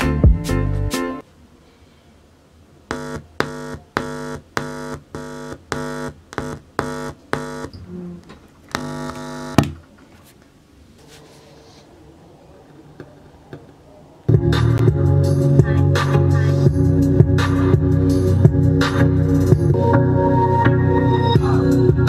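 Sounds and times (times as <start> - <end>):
faint steady hum: 1.2 - 14.8
amplifier buzzing hum: 2.5 - 9.9.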